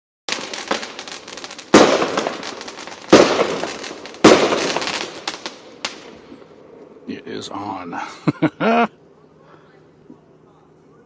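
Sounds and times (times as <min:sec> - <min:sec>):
fireworks loud bangs: 0:00.3 - 0:06.5
fireworks popping: 0:00.3 - 0:06.5
fireworks crackling: 0:00.3 - 0:08.9.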